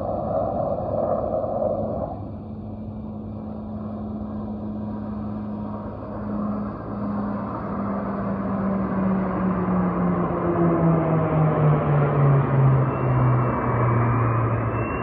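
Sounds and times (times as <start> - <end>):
jet engines roaring: 0.0 - 15.0.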